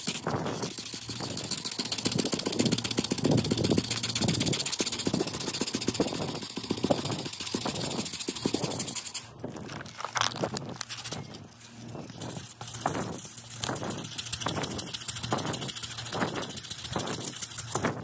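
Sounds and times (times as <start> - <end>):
sandpaper rasping on painted panel: 0.0 - 9.3, 10.8 - 18.0.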